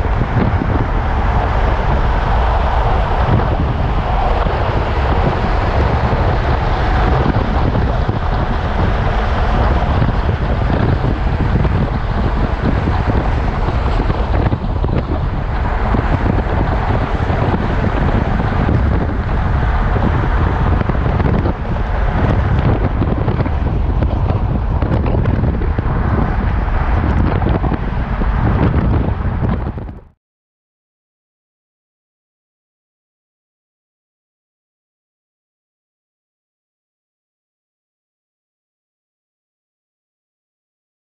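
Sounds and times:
vehicle road noise: 0:00.0 - 0:30.2
wind buffeting microphone: 0:00.0 - 0:30.2.

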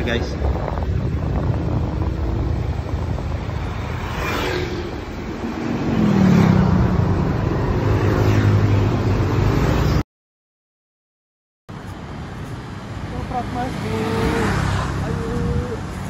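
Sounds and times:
street traffic rumble: 0:00.0 - 0:10.0, 0:11.7 - 0:16.0
scooter passing by: 0:01.4 - 0:10.0, 0:12.9 - 0:16.0.

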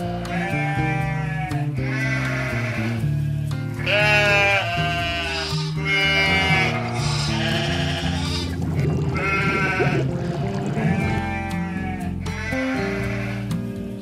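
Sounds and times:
background music: 0:00.0 - 0:14.0
cartoon sheep bleating: 0:03.8 - 0:13.5.

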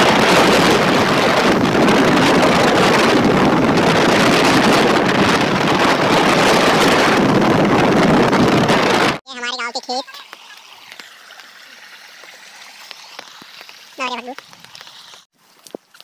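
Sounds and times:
vehicle on wet road: 0:00.0 - 0:07.8, 0:10.1 - 0:15.3
wind on microphone: 0:00.0 - 0:09.2.

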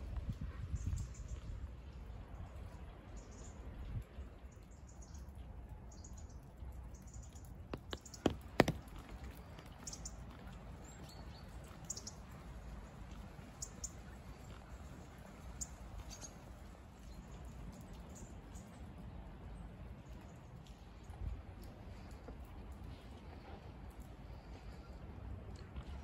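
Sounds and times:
sharp taps: 0:07.7 - 0:09.4.

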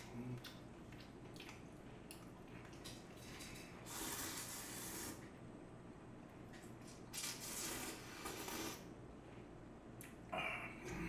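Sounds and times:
faint clicks and wet sounds: 0:00.0 - 0:05.4, 0:06.2 - 0:10.3
person slurping noodles: 0:03.8 - 0:05.2, 0:07.2 - 0:08.9.

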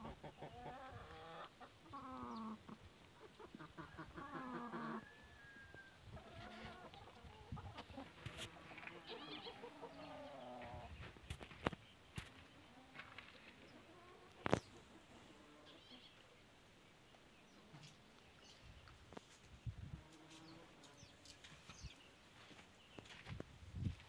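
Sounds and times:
hens clucking: 0:00.0 - 0:05.2, 0:06.1 - 0:16.3.

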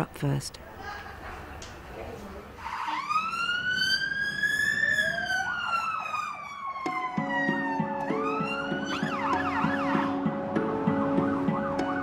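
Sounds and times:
ambulance siren wailing: 0:02.6 - 0:12.0
fast warbling siren tone: 0:02.6 - 0:12.0.

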